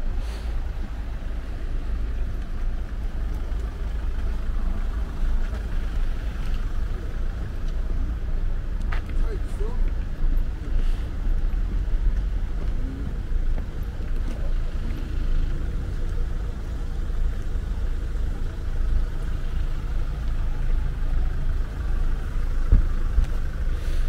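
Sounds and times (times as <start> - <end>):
low outdoor rumble: 0.0 - 24.0.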